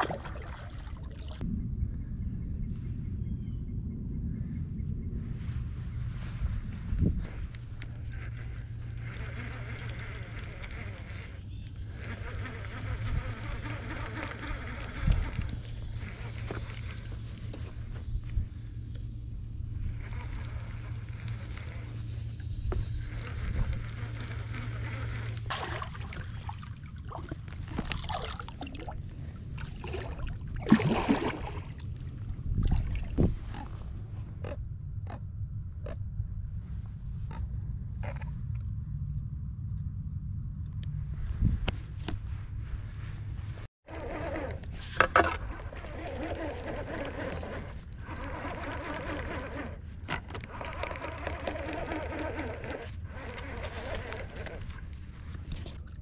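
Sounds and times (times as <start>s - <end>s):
fishing reel whirring: 7.1s - 33.8s, 43.8s - 56.0s
fishing reel click: 7.5s - 19.1s, 19.7s - 25.5s, 43.9s - 55.0s
fish thrashing and splashing: 23.0s - 32.0s.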